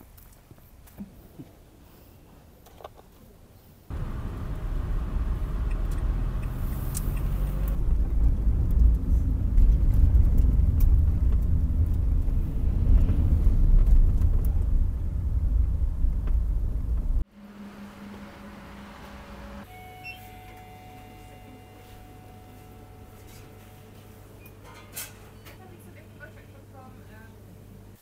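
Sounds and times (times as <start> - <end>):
car engine and road rumble: 3.9 - 19.7.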